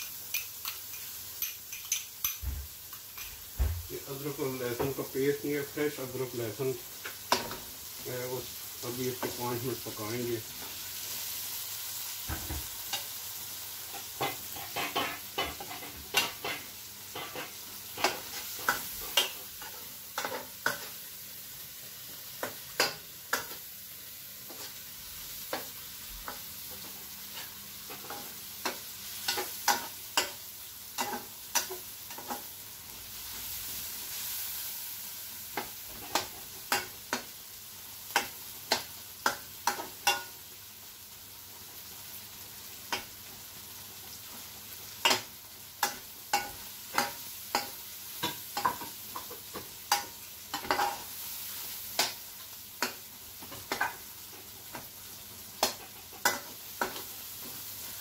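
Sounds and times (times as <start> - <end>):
metal spoon scraping a pan: 0.0 - 3.5, 13.9 - 21.0, 27.3 - 30.4, 31.0 - 32.5, 38.1 - 40.4, 45.0 - 51.2, 55.6 - 57.1
frying sizzle: 0.0 - 58.0.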